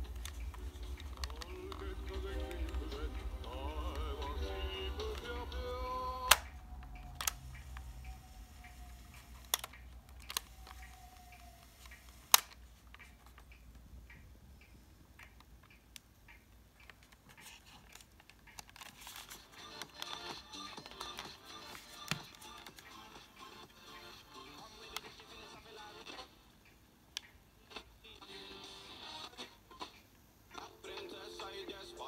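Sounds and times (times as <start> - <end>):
tape winding whine: 0.0 - 12.7
faint music: 0.0 - 32.0.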